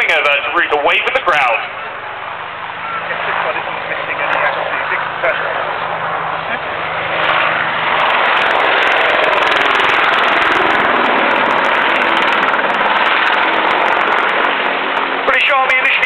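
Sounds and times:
helicopter rotor and engine: 0:00.0 - 0:16.0.

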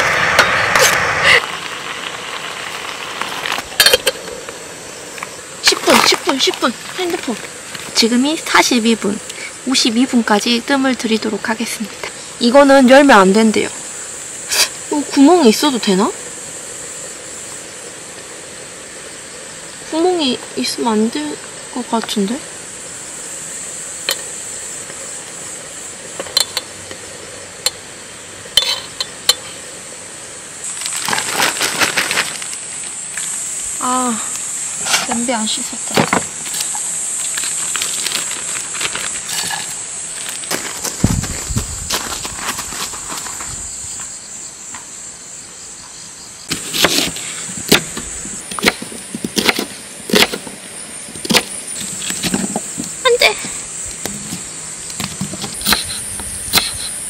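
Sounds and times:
insect chirring: 0:00.0 - 0:57.0
steady high hiss: 0:00.0 - 0:57.0
plastic bags rustling: 0:30.7 - 0:32.9, 0:36.6 - 0:43.5.

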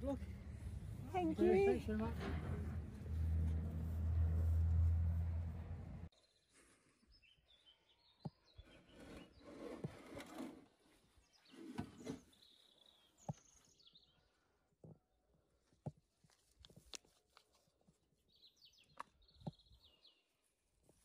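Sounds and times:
faint birdsong: 0:06.1 - 0:15.4, 0:18.1 - 0:20.6.

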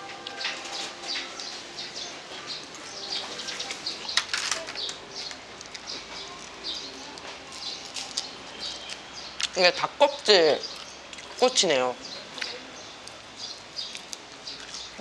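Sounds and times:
small birds chirping: 0:00.3 - 0:15.0
person chewing: 0:05.6 - 0:09.6, 0:10.7 - 0:11.4, 0:13.8 - 0:15.0.

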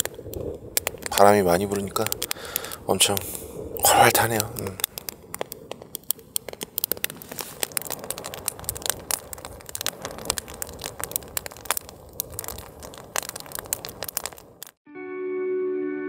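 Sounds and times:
campfire crackling and popping: 0:00.0 - 0:14.8
gusting wind rumble: 0:00.0 - 0:14.8.

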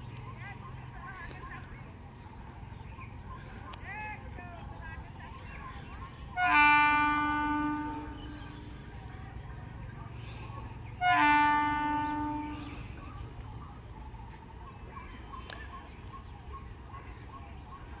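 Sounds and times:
train horn blasts: 0:06.3 - 0:09.0, 0:11.0 - 0:13.0.

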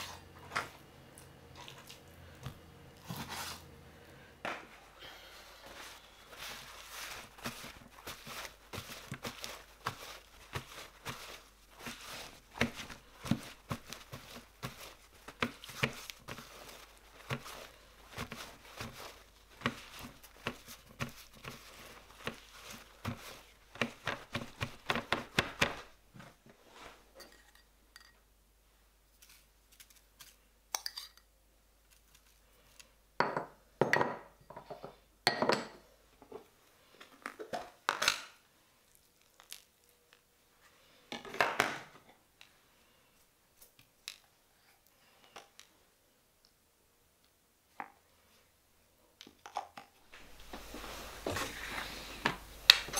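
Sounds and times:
handling noise: 0:05.6 - 0:26.6
paper towel crinkling and patting: 0:05.6 - 0:26.8.

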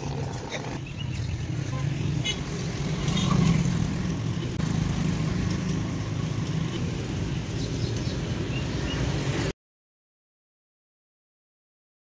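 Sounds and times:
street traffic rumble: 0:00.0 - 0:09.6.

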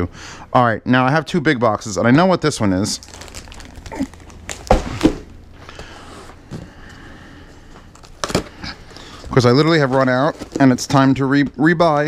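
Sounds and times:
scraping and rustling of tape: 0:07.5 - 0:11.2.

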